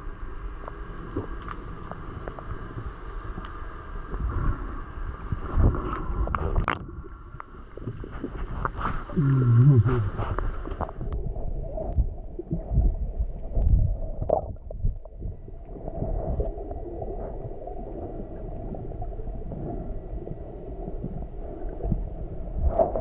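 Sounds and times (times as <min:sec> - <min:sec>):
steady low hiss: 0:00.0 - 0:23.0
underwater water rush: 0:00.0 - 0:23.0
clicks underwater: 0:05.6 - 0:12.8, 0:13.4 - 0:15.4.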